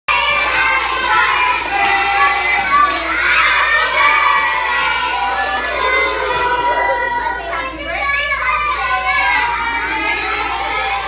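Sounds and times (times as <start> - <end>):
children singing: 0.1 - 11.0
people clapping: 0.1 - 11.0.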